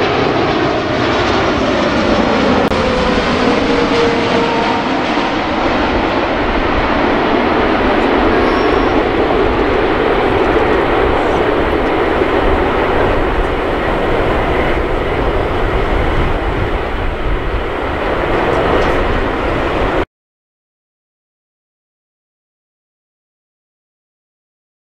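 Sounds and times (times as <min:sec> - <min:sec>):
jet engines of landing plane: 0:00.0 - 0:20.1.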